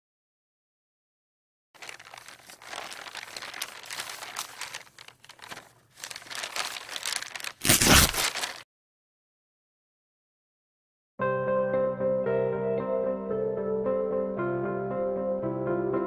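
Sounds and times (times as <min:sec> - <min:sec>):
paper crumpling: 0:01.8 - 0:08.6.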